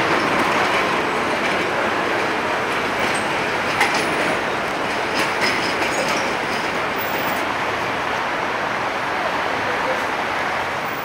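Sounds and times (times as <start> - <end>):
wheels clacking over track: 0.0 - 8.3
tram wheels rumbling on rails: 0.0 - 11.0.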